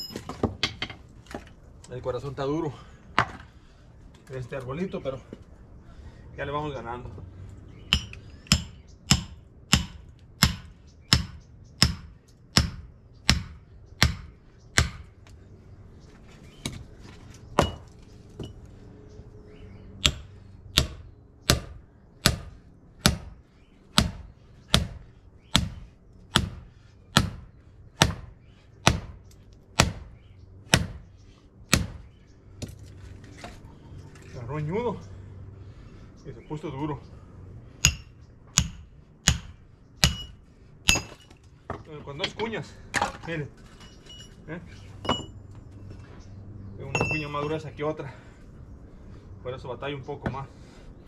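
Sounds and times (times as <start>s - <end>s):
hammer striking splitting wedge: 7.9s - 15.0s.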